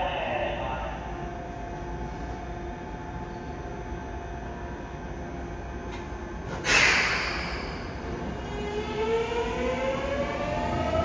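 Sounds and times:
idling subway train hum: 0.0 - 11.0.

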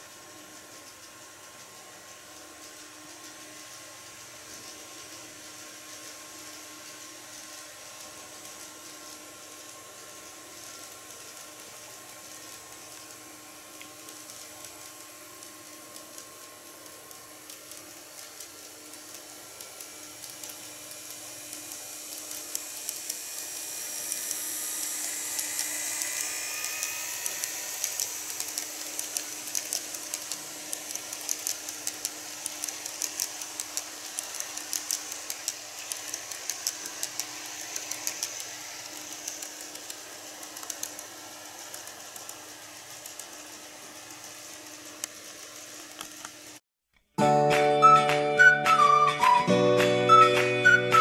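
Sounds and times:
model train motor whine: 7.3 - 46.6
wheels clicking over rail joints: 26.8 - 46.3.

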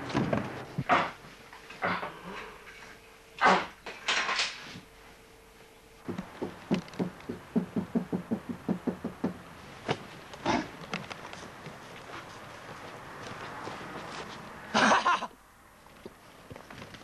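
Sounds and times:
knuckles knocking on window: 6.1 - 9.4.

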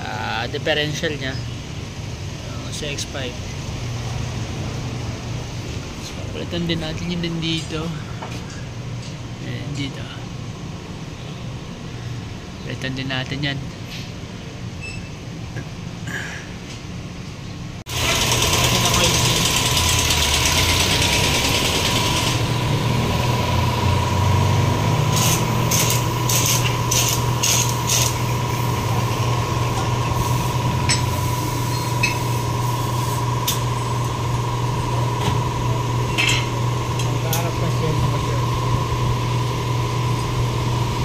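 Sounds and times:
machine hum: 17.8 - 41.0.

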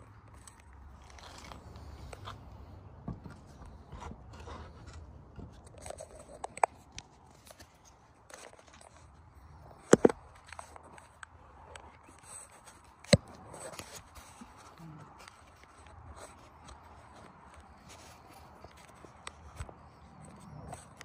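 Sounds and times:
phone handling rustles and clicks: 5.4 - 21.0.

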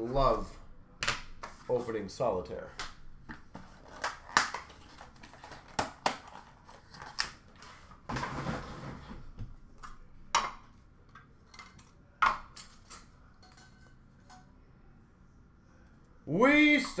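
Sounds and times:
packaging rustling and scraping: 3.5 - 9.3.

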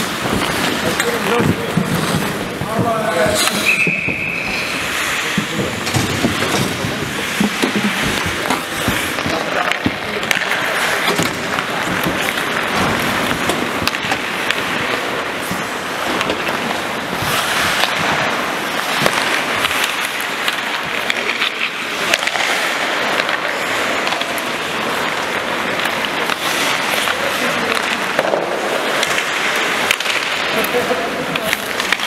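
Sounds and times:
skates scraping on ice: 0.0 - 32.0.

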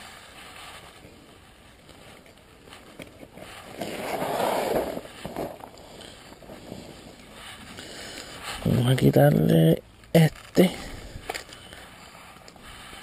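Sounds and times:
fishing gear rustling in bag: 0.0 - 8.8.

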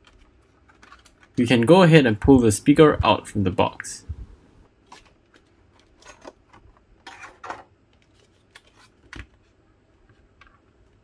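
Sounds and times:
plastic packaging crinkling: 0.0 - 1.4.

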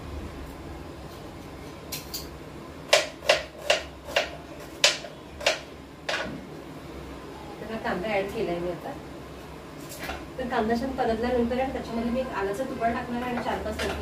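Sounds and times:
knife chopping on cutting board: 2.9 - 6.3.

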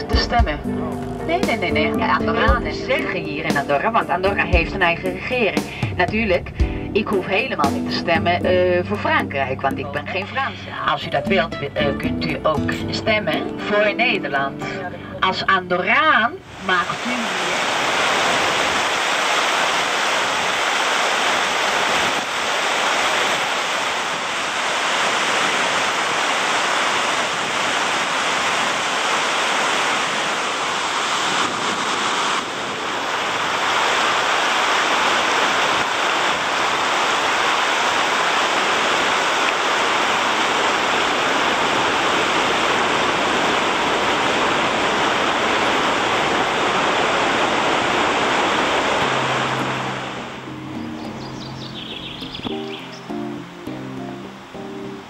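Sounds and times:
river rushing over rocks: 16.4 - 55.0.

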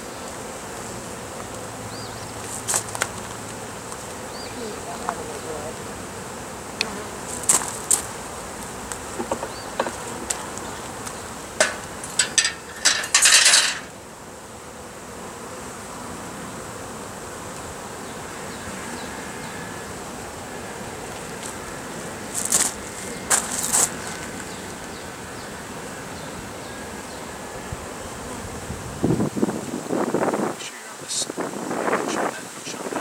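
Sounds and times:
honeybees buzzing: 0.0 - 33.0
hive tool scraping rasp: 4.9 - 14.0, 20.7 - 24.8
wooden frames clicking and knocking: 11.6 - 13.9.

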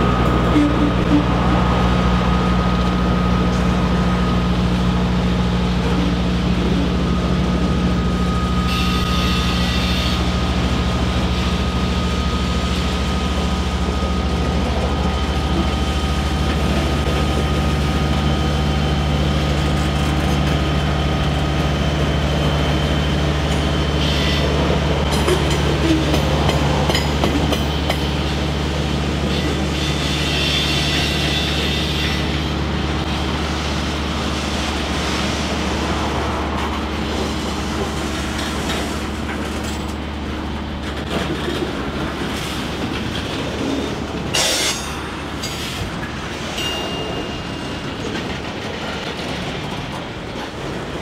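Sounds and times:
low diesel engine drone: 0.0 - 30.4
train wheels rumbling over rails: 0.0 - 51.0.

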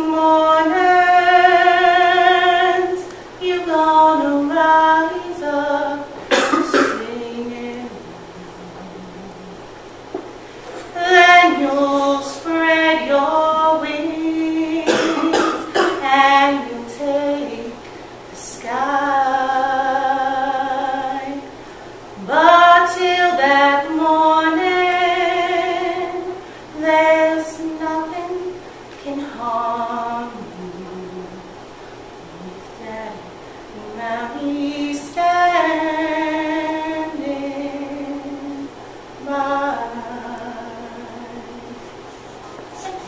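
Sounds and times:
woman singing unaccompanied: 0.0 - 9.9, 10.8 - 43.0.

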